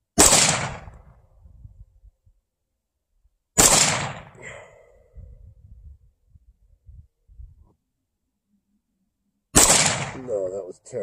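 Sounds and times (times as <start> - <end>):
rifle shot: 0.2 - 1.2, 3.6 - 4.4, 9.5 - 10.6.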